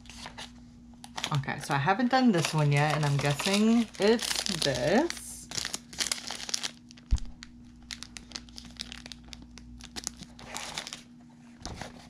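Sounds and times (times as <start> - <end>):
paper rustling: 0.0 - 1.3
snack wrappers crinkling: 0.0 - 1.4, 2.3 - 11.1.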